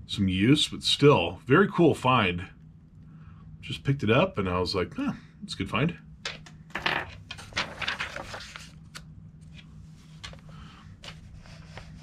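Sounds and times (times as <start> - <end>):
paper pages rustling: 7.2 - 12.0.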